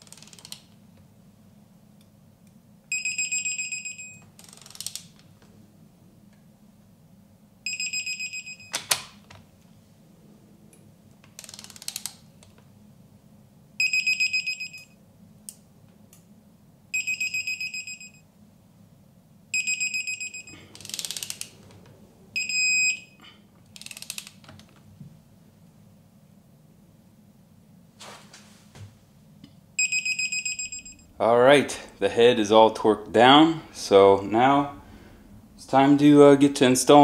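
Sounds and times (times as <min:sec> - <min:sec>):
torque wrench beeping: 0:29.8 - 0:31.1.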